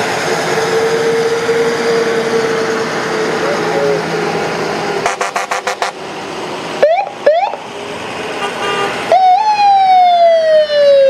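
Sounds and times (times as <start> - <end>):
electronic siren: 5.0 - 6.0, 6.8 - 7.6, 9.1 - 11.0.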